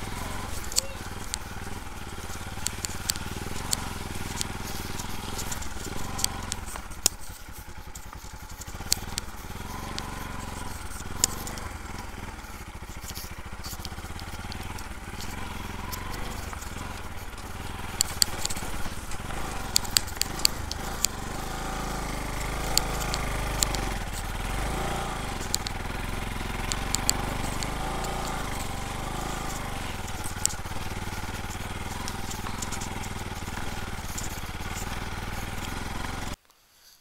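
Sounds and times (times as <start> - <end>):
motorcycle engine running: 0.0 - 36.4
sharp clicks and knocks: 0.0 - 36.5.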